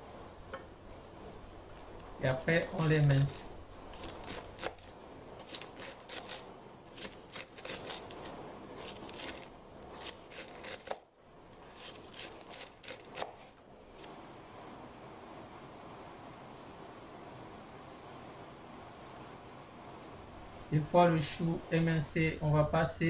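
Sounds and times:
knife slicing cabbage on cutting board: 4.0s - 11.0s, 11.6s - 13.5s.

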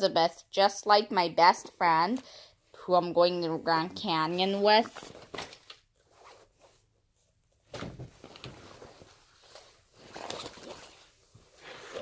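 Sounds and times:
book and backpack rustling: 4.0s - 12.0s.

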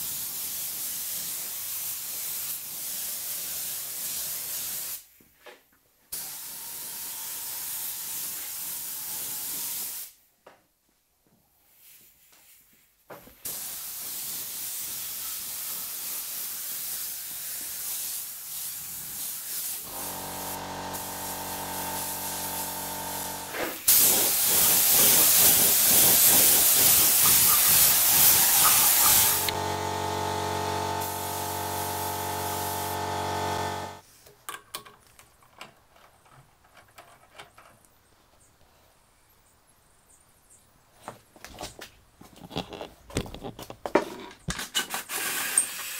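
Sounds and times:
spray gun hissing: 13.5s - 34.0s
multi-tone hum: 19.9s - 23.6s, 28.6s - 34.0s.

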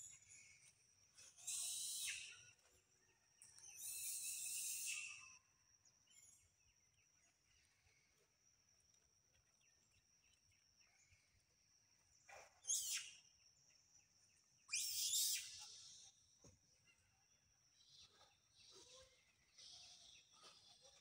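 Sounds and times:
high-pitched insect drone: 3.8s - 5.4s.

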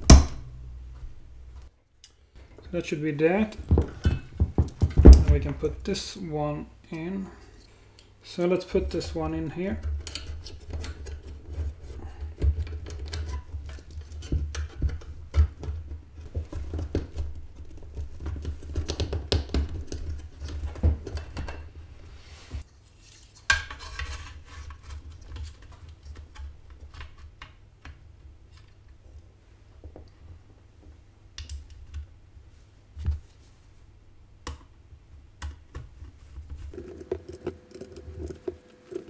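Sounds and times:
cables rattling against metal case: 36.7s - 39.0s.

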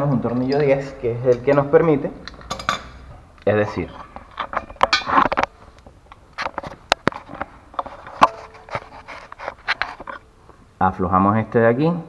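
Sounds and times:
metal tools clicking and knocking: 0.2s - 3.1s, 4.0s - 5.6s.

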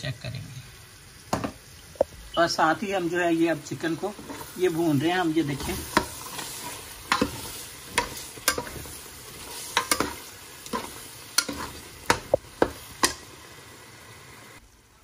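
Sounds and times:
chicken sizzling: 0.0s - 15.0s
metal spoon scraping a pot: 5.6s - 12.3s.

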